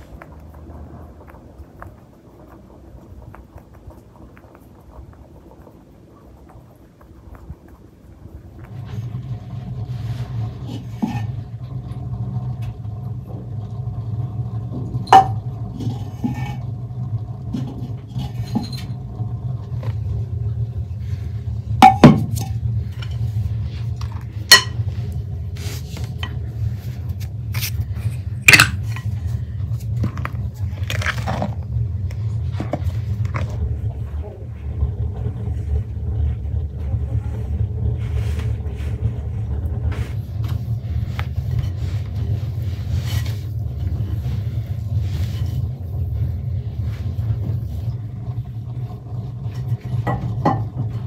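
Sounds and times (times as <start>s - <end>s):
steady low hum: 0.0s - 51.0s
metal cookware clanking: 15.0s - 16.8s, 21.8s - 22.5s, 24.4s - 24.9s.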